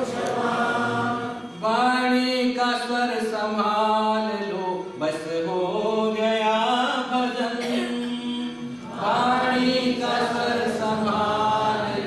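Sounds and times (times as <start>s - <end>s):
man chanting: 1.6s - 12.0s.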